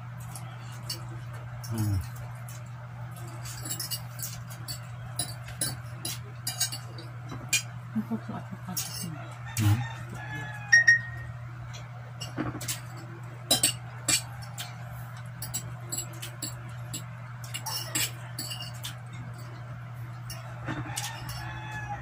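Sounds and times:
steady low hum: 0.0 - 22.0
cutlery clicking on plates: 1.6 - 7.8, 11.7 - 21.9.

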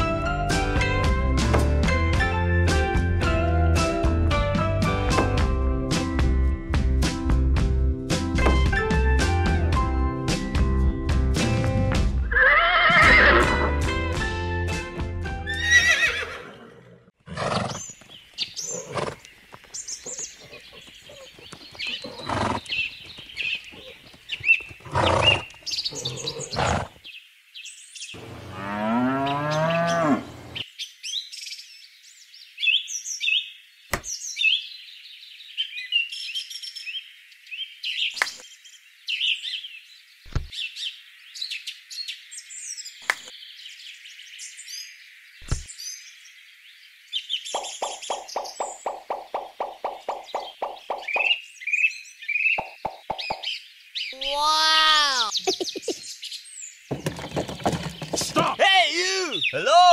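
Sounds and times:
sharp knocks: 8.4 - 8.8
birds chirping: 17.4 - 59.9.

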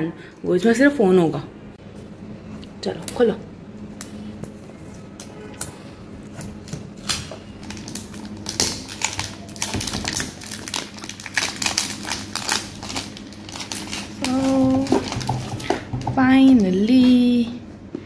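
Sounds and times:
plastic wrap crinkling: 6.4 - 17.4.

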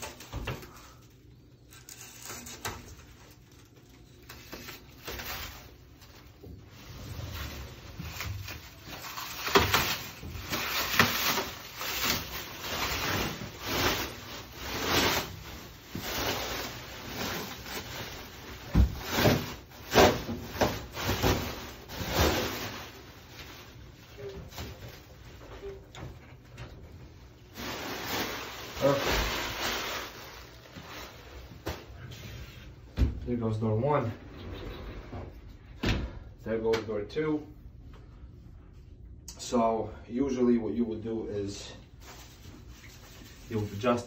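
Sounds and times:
plastic film peeling and crackling: 0.0 - 25.8, 27.5 - 31.5.

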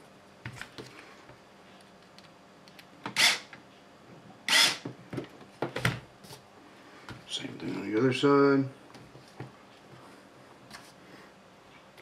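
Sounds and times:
electric screwdriver driving screws: 3.1 - 3.5, 4.5 - 4.8.

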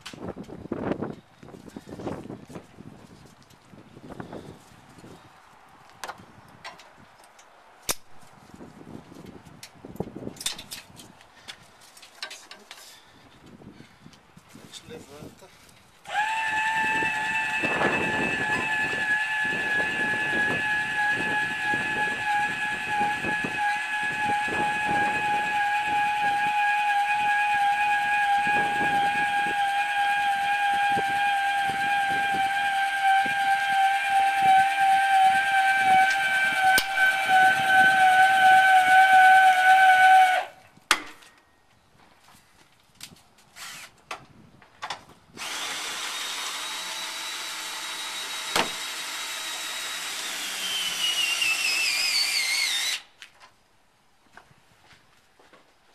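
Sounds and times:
electric motor whining: 16.1 - 40.4, 45.4 - 53.0.

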